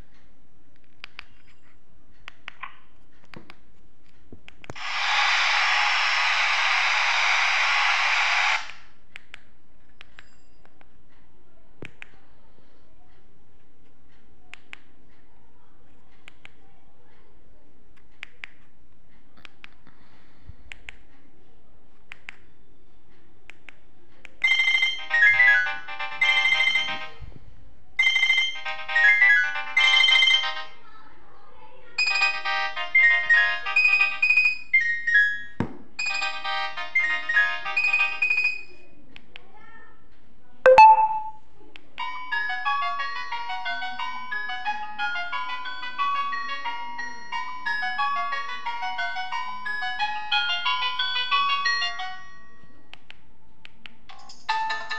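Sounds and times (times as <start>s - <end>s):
electronic ringtone melody: 28.0s - 30.5s, 40.7s - 41.4s.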